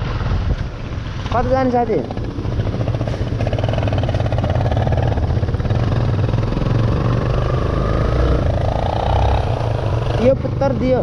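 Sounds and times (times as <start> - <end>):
motorcycle engine running: 1.2 - 11.0.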